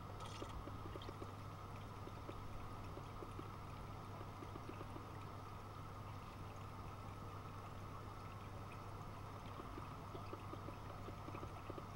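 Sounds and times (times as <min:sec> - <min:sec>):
faint ticks: 0:00.3 - 0:05.4, 0:07.6 - 0:11.9.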